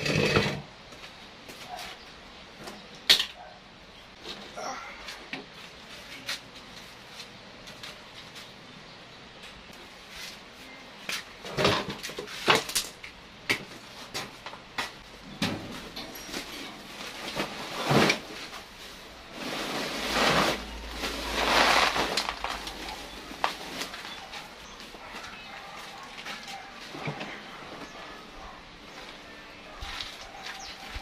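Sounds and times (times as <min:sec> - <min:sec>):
plastic sack rustling: 0:15.7 - 0:24.6.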